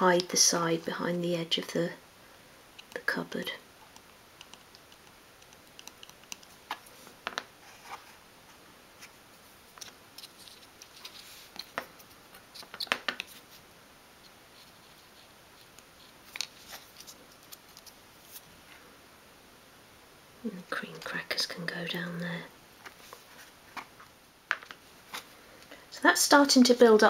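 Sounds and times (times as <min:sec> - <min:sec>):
tweezers clicking and tapping: 0:03.9 - 0:06.5.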